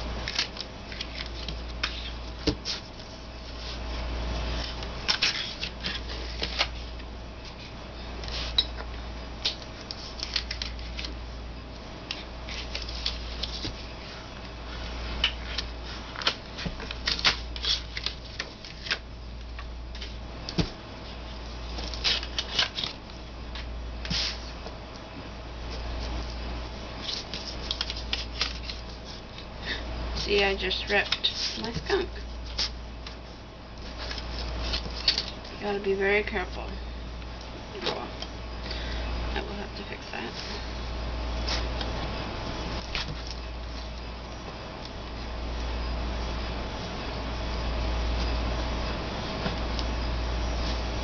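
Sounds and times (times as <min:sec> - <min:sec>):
paper crackles and snaps: 0:00.2 - 0:02.1, 0:09.4 - 0:11.2, 0:15.2 - 0:19.0, 0:21.8 - 0:23.0, 0:27.0 - 0:29.4.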